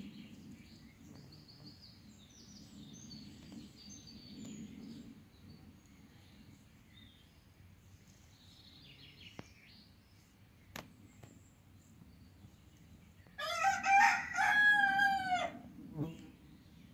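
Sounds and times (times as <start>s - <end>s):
rooster crowing: 13.4s - 15.6s.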